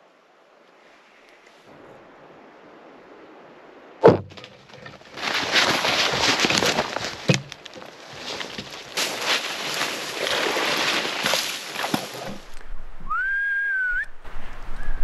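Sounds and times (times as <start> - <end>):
sharp thump: 4.0 - 4.5
brush rustling against camera: 4.0 - 12.8.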